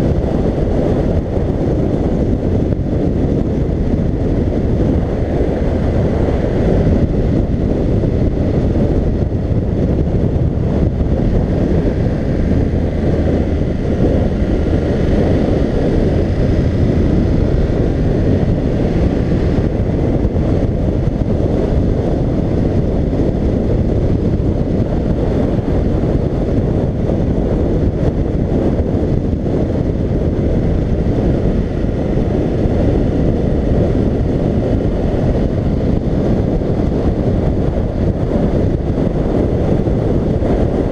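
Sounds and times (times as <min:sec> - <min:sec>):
motorcycle engine: 0:00.0 - 0:40.9
wind rush on microphone: 0:00.0 - 0:40.9.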